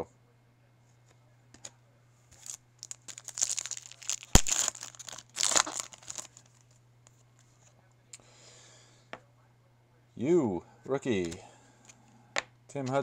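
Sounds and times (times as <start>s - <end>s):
foil wrapper tearing and crinkling: 2.4s - 6.6s.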